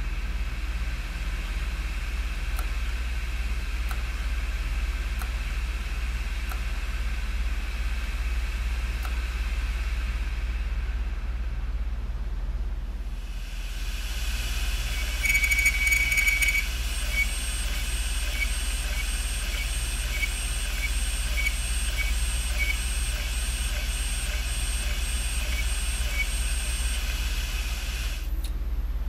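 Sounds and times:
hard drive motor humming: 13.7s - 28.4s.

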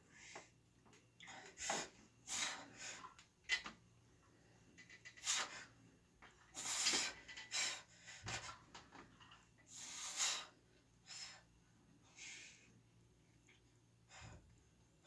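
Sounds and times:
sharp hissing breaths: 1.3s - 3.0s, 5.1s - 5.8s, 6.5s - 8.5s, 9.7s - 12.8s.

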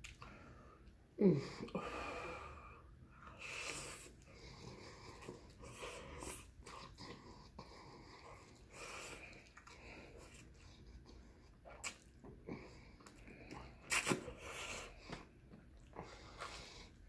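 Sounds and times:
chewing and wet mouth noises: 0.0s - 1.0s, 3.2s - 17.0s.

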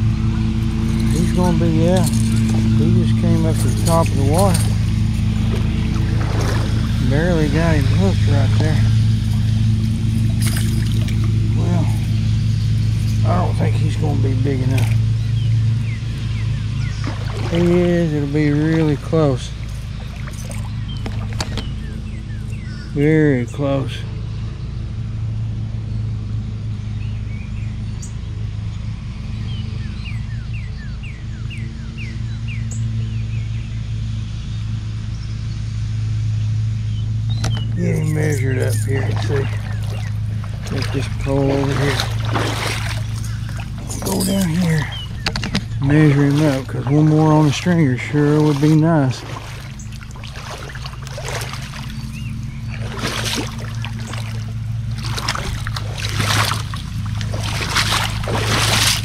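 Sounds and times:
low engine hum: 0.0s - 59.0s
rustling and scuffing in brush: 38.6s - 59.0s
bird whistling: 42.8s - 45.9s.

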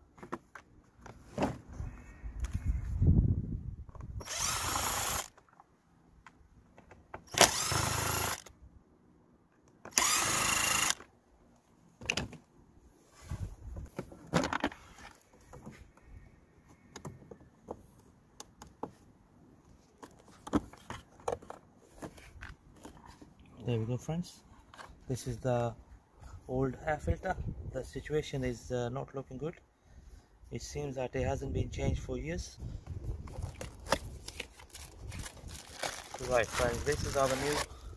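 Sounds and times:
cordless power driver: 4.1s - 5.4s, 7.3s - 8.5s, 9.9s - 11.1s.

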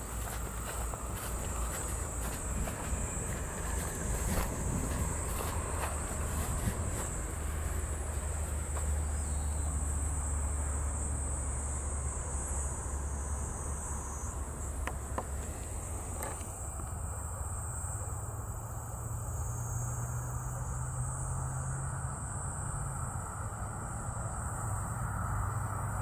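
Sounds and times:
low steady rumble: 0.0s - 21.2s
insects chirring: 0.0s - 26.0s.

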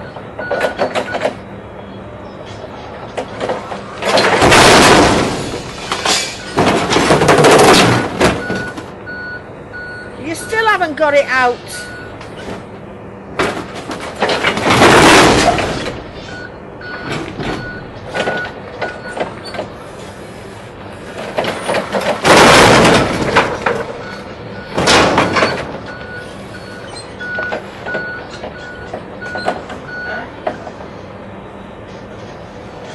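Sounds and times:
forklift engine humming: 0.0s - 32.9s
reversing beeper: 8.0s - 12.2s, 16.2s - 19.6s, 24.0s - 30.3s.

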